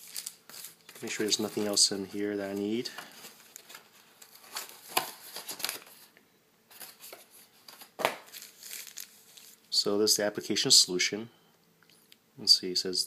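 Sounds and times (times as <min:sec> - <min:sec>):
plastic packaging crinkling: 0:00.0 - 0:06.1, 0:06.7 - 0:09.6.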